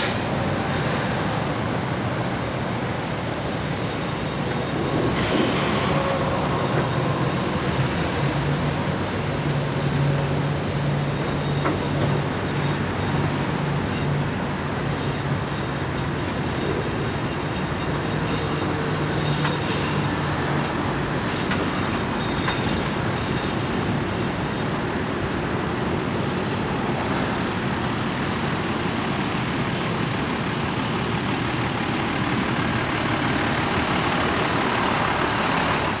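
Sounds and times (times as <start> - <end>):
train wheels clicking: 10.6 - 25.9.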